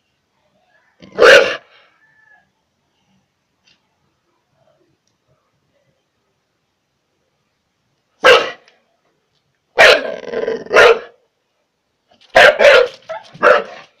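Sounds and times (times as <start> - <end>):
dog barking: 1.1 - 1.8, 8.2 - 8.7, 9.8 - 11.2, 12.3 - 13.9.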